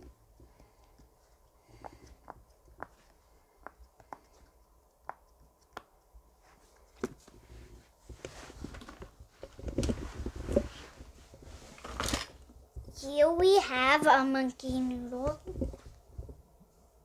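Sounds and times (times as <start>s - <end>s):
handling and rustling: 6.5s - 13.0s.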